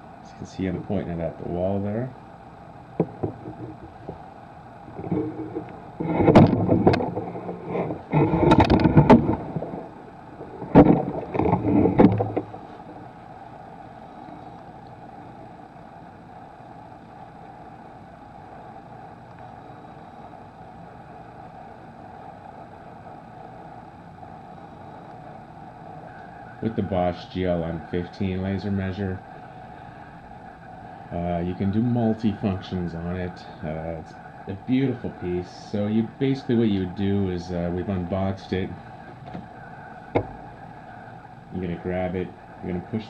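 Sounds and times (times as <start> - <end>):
low room hum: 0.0 - 43.0
handling knocks and rustling: 4.9 - 13.0.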